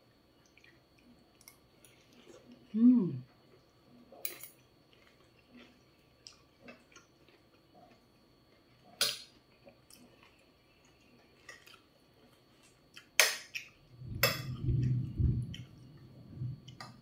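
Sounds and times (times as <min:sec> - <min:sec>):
low rumble: 0:13.9 - 0:17.0.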